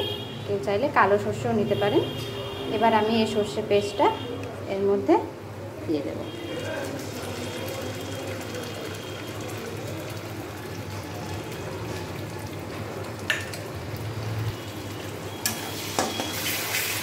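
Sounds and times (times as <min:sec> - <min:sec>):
oil sizzling in pan: 0:13.3 - 0:17.0.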